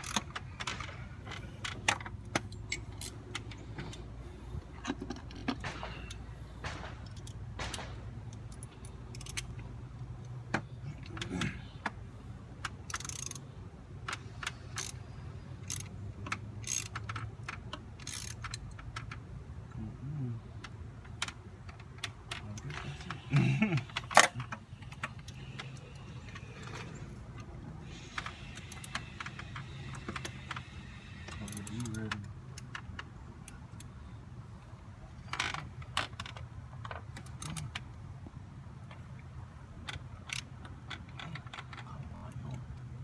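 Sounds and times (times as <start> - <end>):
metallic clicks of ratchet: 0.0 - 4.0, 7.0 - 10.4, 12.6 - 15.0, 15.6 - 19.2, 27.4 - 33.9, 39.9 - 41.9.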